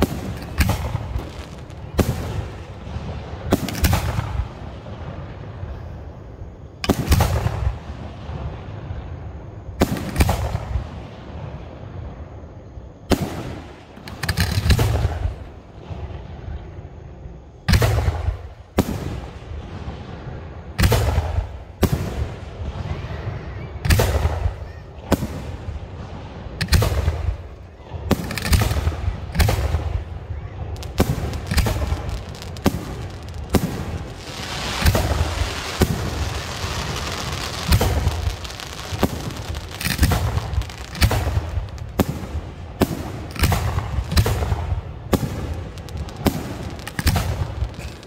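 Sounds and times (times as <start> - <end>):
rumbling echo: 25.3 - 48.0
firework shells bursting: 28.2 - 30.1, 30.8 - 48.0.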